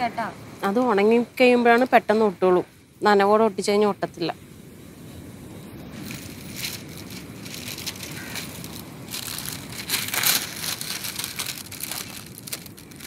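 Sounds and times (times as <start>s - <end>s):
paper rustling and crinkling: 5.9s - 13.0s.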